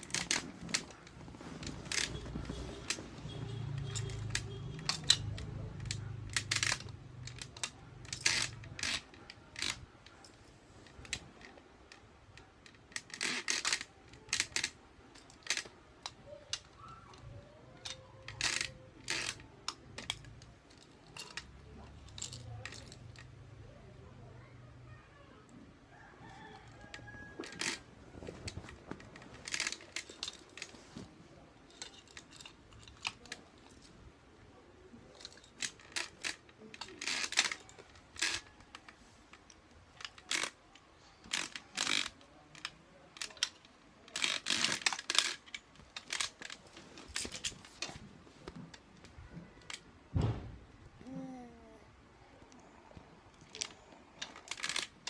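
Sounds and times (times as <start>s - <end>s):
plastic rattles clacking: 0.0s - 23.3s, 27.3s - 31.1s, 31.7s - 33.9s, 41.2s - 50.4s, 53.4s - 55.0s
low thump: 50.1s - 50.6s.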